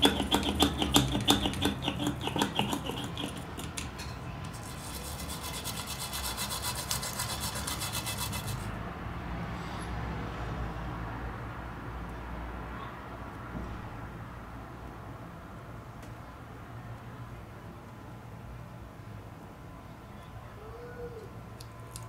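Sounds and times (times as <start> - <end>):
stiff brush scrubbing: 0.0 - 3.8, 4.5 - 8.7
fast fine scratching: 4.5 - 8.7.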